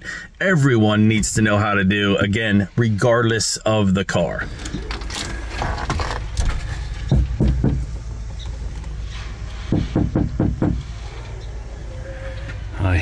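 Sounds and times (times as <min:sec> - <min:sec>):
knocking on a door: 0:07.1 - 0:07.9, 0:09.7 - 0:10.9.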